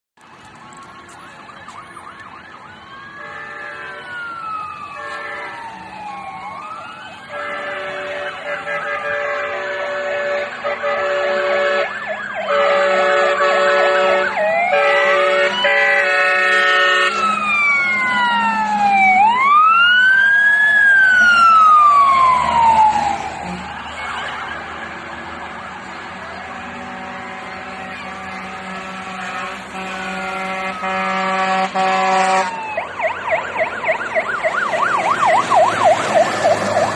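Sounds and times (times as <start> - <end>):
electronic sirens wailing: 0.2 - 36.9
air horn blasts: 3.2 - 4.2, 5.0 - 5.7, 7.3 - 17.4, 26.4 - 32.6.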